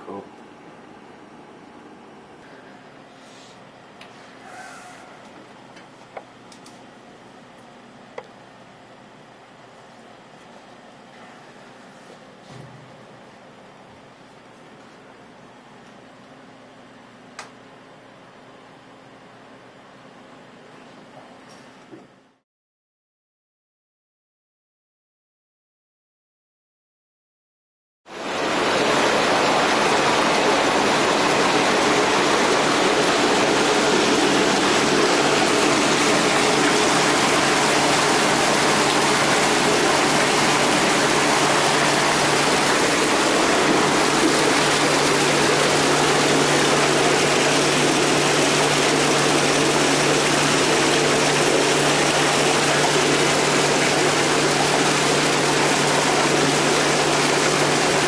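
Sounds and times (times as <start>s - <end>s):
water gushing into tank: 28.1s - 58.0s.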